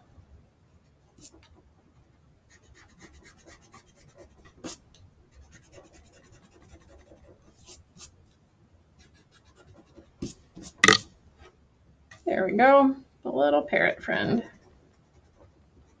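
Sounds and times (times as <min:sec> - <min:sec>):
pencil sketching on paper: 0:02.5 - 0:08.2, 0:09.0 - 0:10.8, 0:14.4 - 0:16.0.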